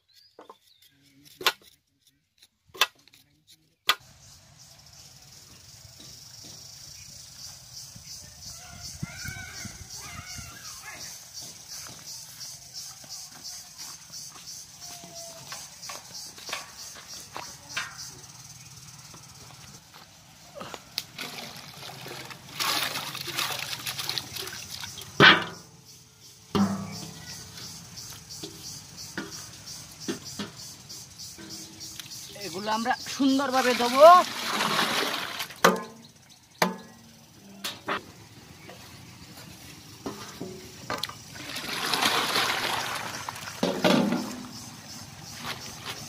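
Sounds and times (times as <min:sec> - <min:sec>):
cooking pots clanking: 0:17.7 - 0:18.3, 0:24.9 - 0:25.8, 0:26.6 - 0:27.5, 0:28.4 - 0:32.2, 0:35.6 - 0:38.0, 0:40.0 - 0:41.5, 0:43.6 - 0:44.8
sharp knock: 0:26.5 - 0:27.2.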